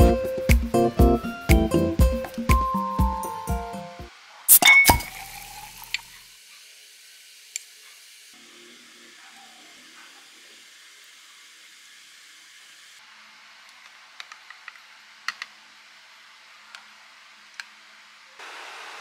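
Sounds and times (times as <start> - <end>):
spoon clinking ceramic dishes: 4.5 - 5.3.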